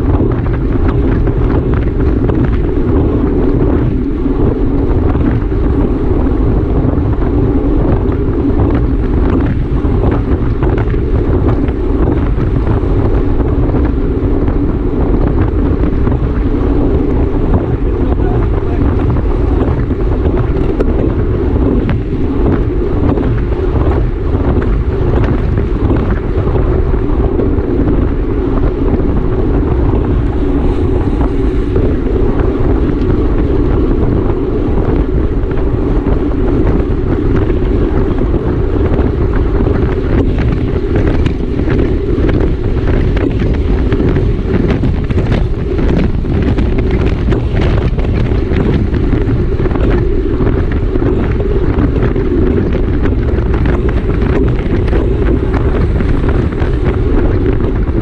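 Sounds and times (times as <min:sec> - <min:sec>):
wind roaring over microphone: 0:00.0 - 0:58.0.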